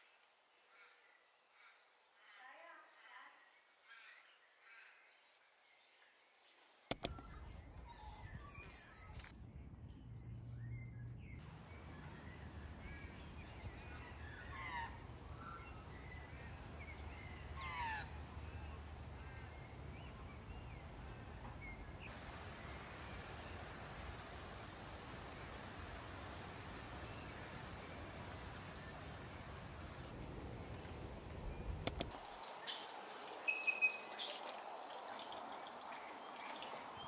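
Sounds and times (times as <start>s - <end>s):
sharp clicks: 6.9s - 7.4s, 31.8s - 32.2s
low outdoor rumble: 7.0s - 32.2s
birds calling: 10.1s - 30.0s.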